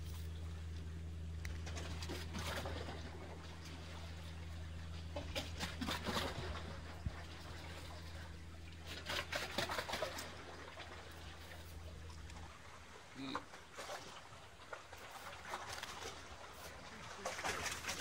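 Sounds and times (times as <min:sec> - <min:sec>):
low hum: 0:00.0 - 0:18.0
waves splashing against concrete: 0:13.0 - 0:18.0.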